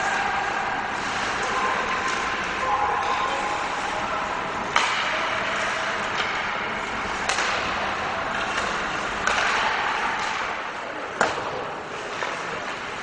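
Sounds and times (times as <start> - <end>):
hockey sticks and puck clacking: 0.0 - 13.0
skates scraping ice: 0.0 - 13.0.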